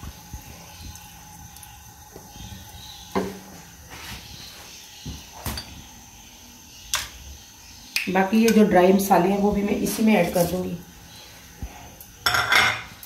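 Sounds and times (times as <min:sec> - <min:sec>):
metal lid clanking on pot: 0:12.2 - 0:12.9.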